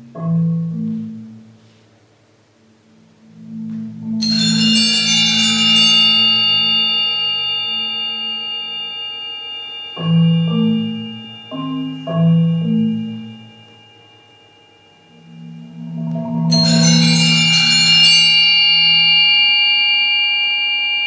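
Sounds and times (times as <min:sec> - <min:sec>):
marimba rolled chords: 0:03.3 - 0:20.7
high bell-like ringing note: 0:04.2 - 0:21.0.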